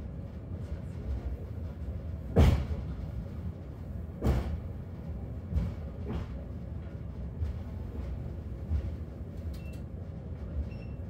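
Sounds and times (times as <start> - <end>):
cable car rumbling on rails: 0.0 - 11.0.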